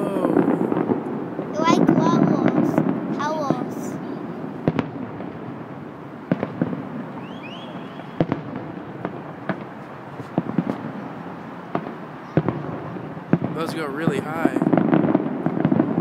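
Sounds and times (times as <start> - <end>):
steady background noise: 0.0 - 16.0
rising firework whistles: 3.9 - 16.0.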